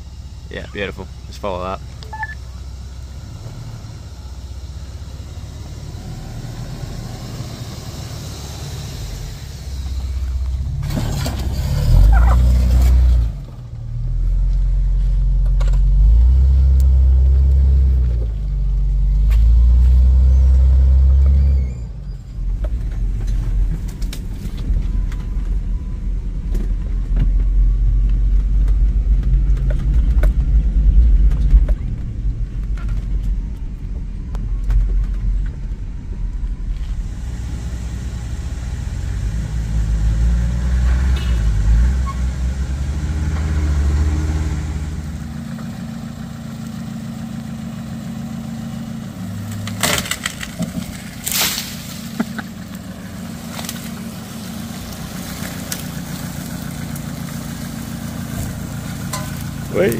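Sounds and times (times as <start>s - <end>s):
vehicle engine rumbling: 0.0s - 59.9s
knocks and rattles over bumps: 22.3s - 37.0s, 49.4s - 59.9s
rough cabin drone: 22.4s - 40.0s.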